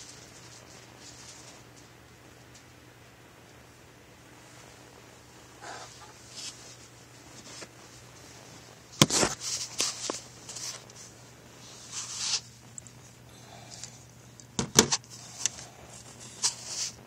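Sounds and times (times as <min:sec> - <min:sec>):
cat rustling in a box: 0:05.8 - 0:12.6, 0:16.0 - 0:17.0.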